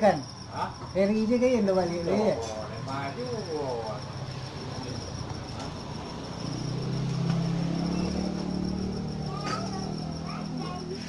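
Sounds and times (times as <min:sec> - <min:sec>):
crickets trilling: 0:00.0 - 0:11.0
low engine hum: 0:04.8 - 0:11.0.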